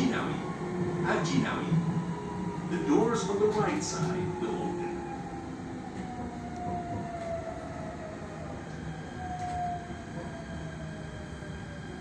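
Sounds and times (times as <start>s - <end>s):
train running rumble: 0.0s - 12.0s.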